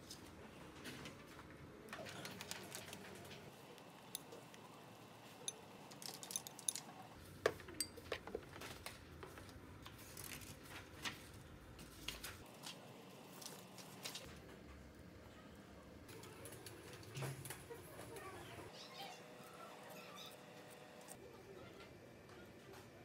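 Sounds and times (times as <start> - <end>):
utensils clinking against pot and bowl: 5.4 - 7.0, 7.6 - 8.3.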